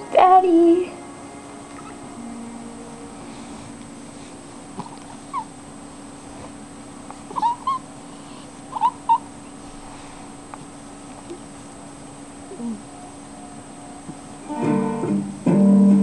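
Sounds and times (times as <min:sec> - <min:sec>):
cat chirping mews: 0:07.3 - 0:07.9.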